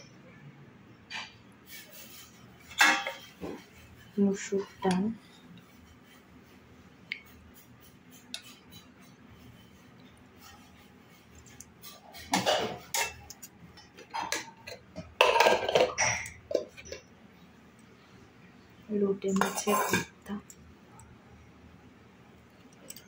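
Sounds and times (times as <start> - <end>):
metal dishes clinking and clattering: 1.1 - 5.1, 7.5 - 17.1, 19.3 - 20.2.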